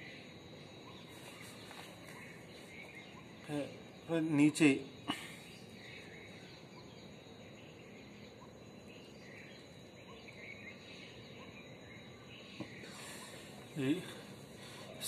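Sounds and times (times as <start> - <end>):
distant bird chirps: 0.0 - 15.0
faint hiss: 12.4 - 15.0.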